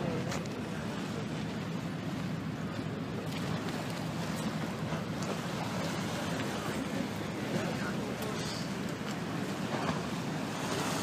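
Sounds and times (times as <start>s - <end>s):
waves splashing against stone: 3.2s - 11.0s.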